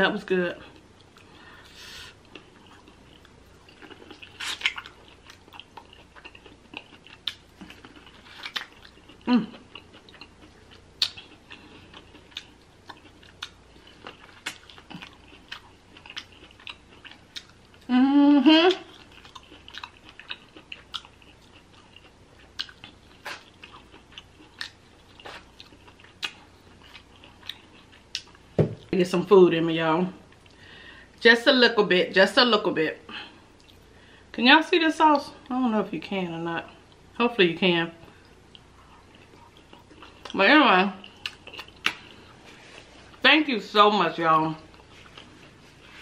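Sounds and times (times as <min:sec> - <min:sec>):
quiet chewing: 0:00.6 - 0:17.9, 0:18.7 - 0:28.5, 0:33.5 - 0:34.0, 0:38.0 - 0:40.4, 0:41.0 - 0:43.2, 0:44.6 - 0:46.0.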